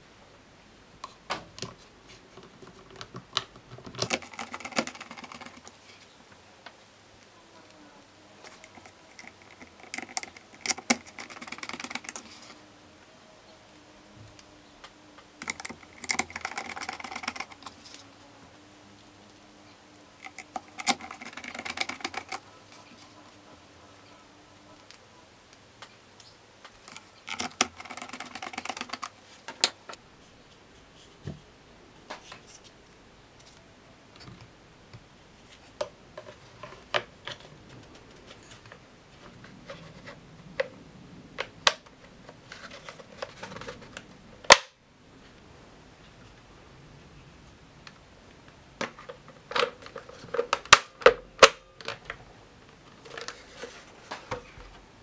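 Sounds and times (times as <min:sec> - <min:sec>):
plastic parts clicking and knocking: 0:01.0 - 0:05.8, 0:08.4 - 0:12.6, 0:15.4 - 0:18.0, 0:20.2 - 0:22.8, 0:26.6 - 0:30.0, 0:48.8 - 0:54.8
rapid clattering clicks: 0:02.9 - 0:05.8, 0:08.4 - 0:12.6, 0:15.4 - 0:18.0, 0:20.2 - 0:22.8, 0:26.7 - 0:29.6
loud plastic snap: 0:44.5 - 0:44.8.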